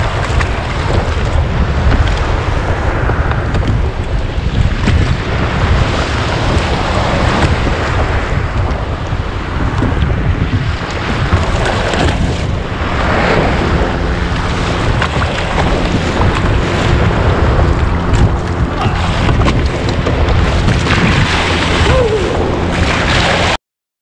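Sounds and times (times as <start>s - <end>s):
wind buffeting microphone: 0.0s - 23.6s
small waves breaking: 10.5s - 23.6s.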